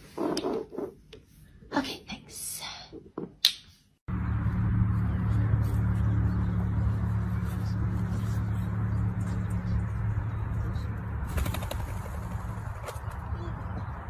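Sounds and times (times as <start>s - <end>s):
pheasant wingbeats: 11.2s - 13.3s.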